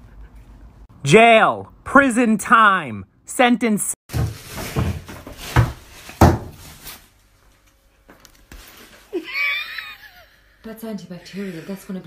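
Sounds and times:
dull thumps: 0:04.1 - 0:06.7.

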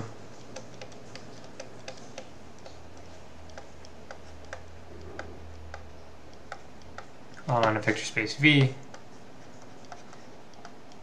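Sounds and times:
low hum: 0:00.0 - 0:07.4
stylus tapping on tablet: 0:00.3 - 0:08.0, 0:08.6 - 0:11.0.

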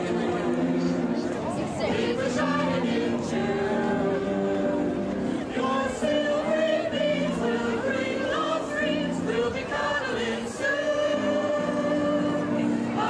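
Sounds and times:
choir singing: 0:00.0 - 0:01.0, 0:01.6 - 0:13.0.

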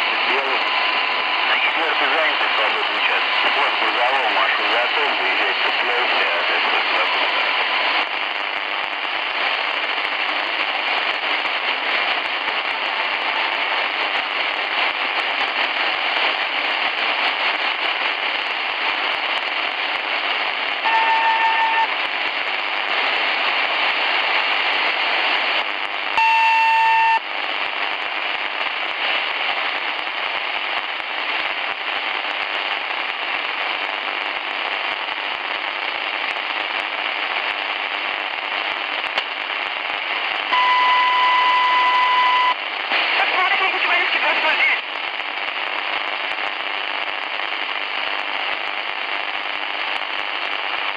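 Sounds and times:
radio static hiss: 0:00.0 - 0:50.9
short beeps: 0:40.6 - 0:42.6.

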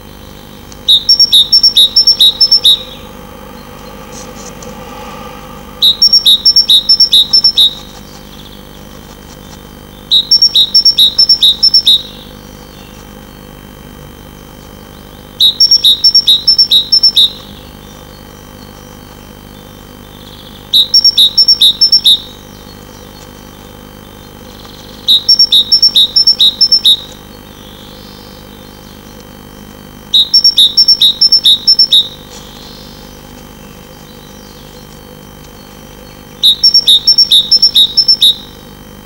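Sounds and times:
great tit singing: 0:00.0 - 0:04.9, 0:05.8 - 0:13.6, 0:14.4 - 0:39.0
steady low hum: 0:00.0 - 0:39.0.

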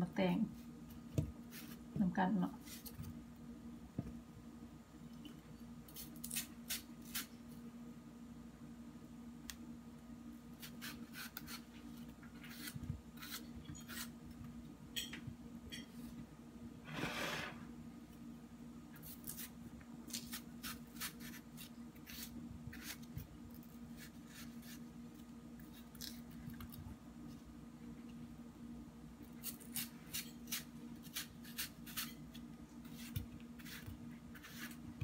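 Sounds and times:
knife scraping rind: 0:10.6 - 0:11.7, 0:12.4 - 0:14.2, 0:20.1 - 0:24.8, 0:29.4 - 0:34.8
knife slicing melon: 0:29.4 - 0:32.2, 0:32.8 - 0:34.8.

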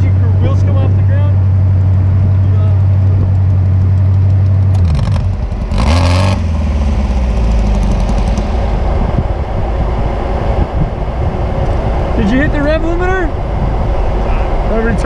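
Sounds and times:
engine running and revving: 0:00.0 - 0:15.0.

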